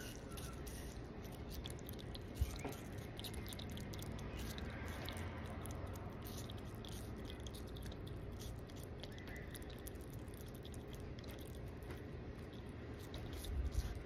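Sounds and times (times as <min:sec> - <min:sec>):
skunk chewing and licking: 0:00.0 - 0:14.0.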